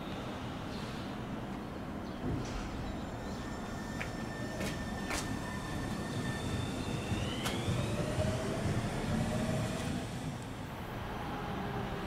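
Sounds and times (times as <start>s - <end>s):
train wheels rumbling: 2.2s - 12.0s
rising electric whine: 3.3s - 11.8s.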